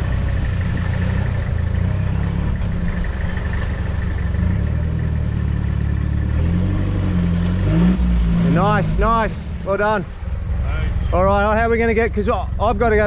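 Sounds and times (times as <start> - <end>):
truck engine droning under load: 0.0 - 13.0.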